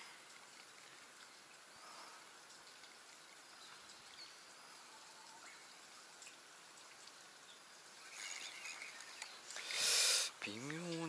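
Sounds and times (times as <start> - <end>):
faint bird chirps: 7.5 - 9.5.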